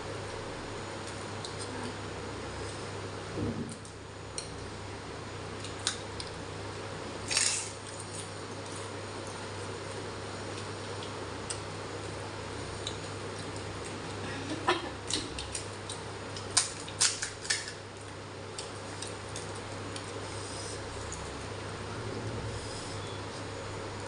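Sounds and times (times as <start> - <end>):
steady low hum: 0.0 - 24.0
crisp shells cracking: 16.4 - 17.8.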